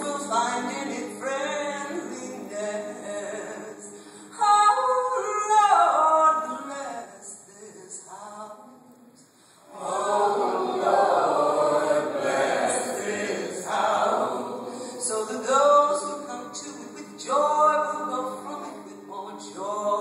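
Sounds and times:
church choir singing: 9.6s - 20.0s
woman soloist singing: 14.6s - 20.0s.

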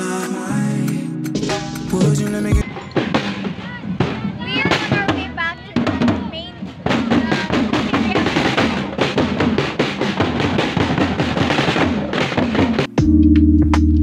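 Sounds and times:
music with held synthesizer notes: 0.0s - 2.6s, 12.8s - 14.0s
marching snare and bass drums: 1.3s - 14.0s.

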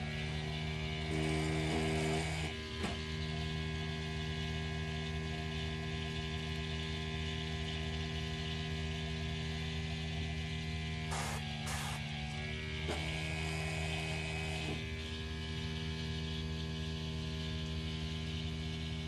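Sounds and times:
whirring hiss: 11.1s - 12.3s.

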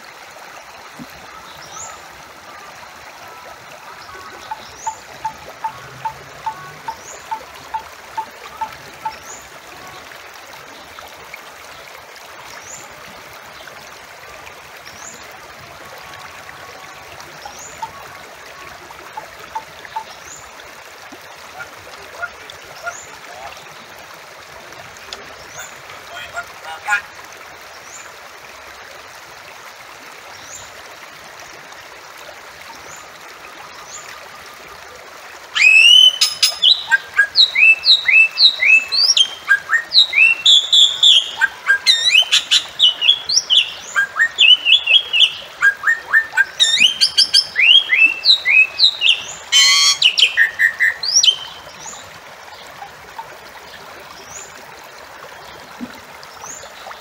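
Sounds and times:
harsh raspy bird calls: 39.8s - 51.4s
bird whistled notes: 49.5s - 50.5s.

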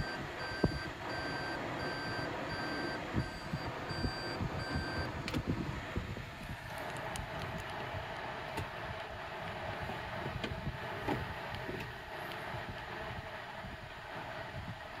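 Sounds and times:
car cabin hum and hiss: 0.0s - 15.0s.

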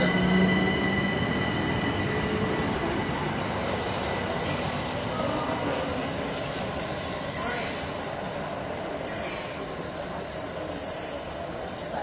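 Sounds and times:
electric train whine: 0.0s - 7.0s.

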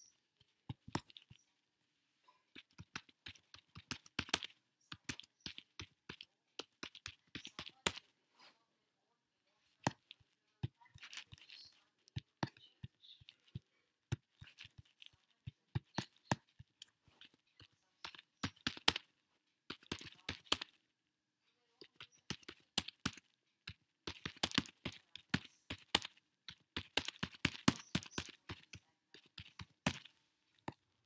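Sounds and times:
typing on computer keyboard: 2.5s - 8.0s, 17.6s - 19.0s, 19.7s - 20.8s, 21.8s - 30.1s.

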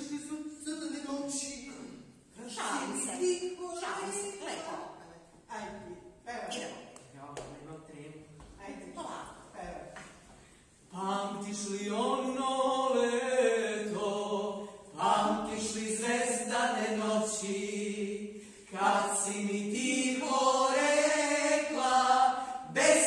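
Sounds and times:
voices singing unaccompanied: 10.9s - 23.0s.

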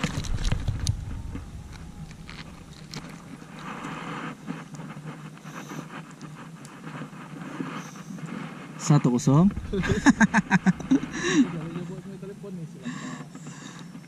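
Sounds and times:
microphone handling noise: 0.0s - 5.1s, 9.2s - 12.2s
low wind rumble: 0.0s - 5.4s, 8.6s - 13.7s
soft rustling hiss: 0.0s - 14.0s.

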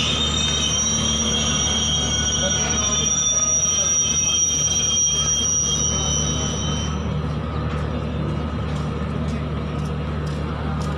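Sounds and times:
train wheels squealing: 0.0s - 7.4s
freight train rumbling: 0.0s - 10.9s.

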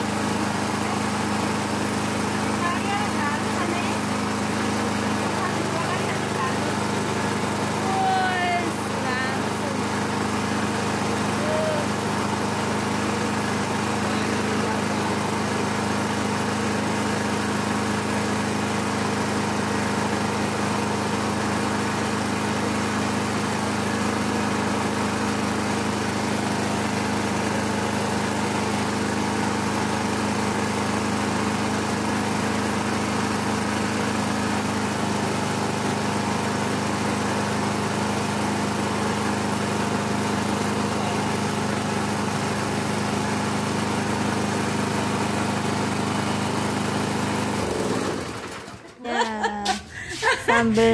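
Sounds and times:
small engine running: 0.0s - 50.9s
grinder grinding: 49.6s - 50.9s.

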